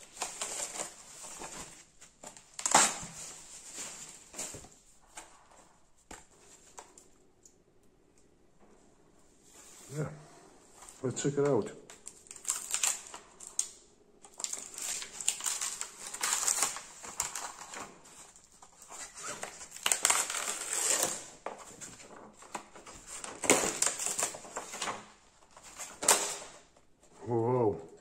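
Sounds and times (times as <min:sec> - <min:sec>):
plastic film crinkling: 0:00.0 - 0:05.2, 0:11.9 - 0:26.7.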